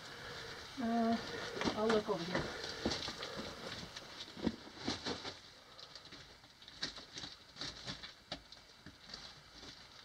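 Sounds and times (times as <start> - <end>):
footsteps crunching on rock rubble: 1.3 - 5.4.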